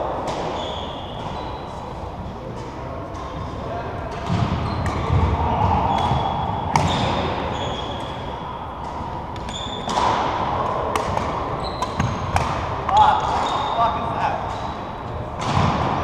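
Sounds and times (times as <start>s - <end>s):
sneakers squeaking on wooden floor: 0.4s - 1.9s, 4.2s - 8.4s, 9.4s - 10.1s, 11.5s - 15.0s
racket hitting shuttlecock: 4.1s - 7.4s, 8.8s - 13.6s, 15.4s - 16.0s.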